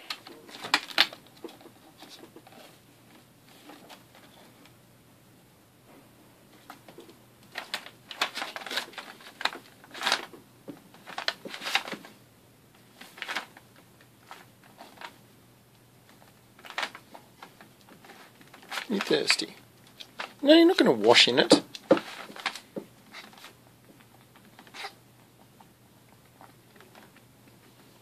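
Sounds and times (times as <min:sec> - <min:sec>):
paper rustling and crinkling: 0:00.0 - 0:04.6, 0:06.6 - 0:12.2, 0:12.8 - 0:15.2, 0:16.1 - 0:20.4, 0:21.4 - 0:25.0.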